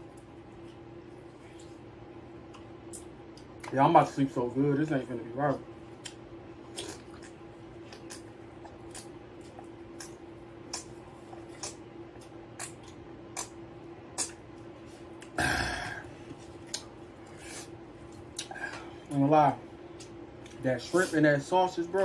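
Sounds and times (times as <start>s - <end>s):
steady low hum: 0.0s - 22.0s
loud burp: 15.4s - 16.0s.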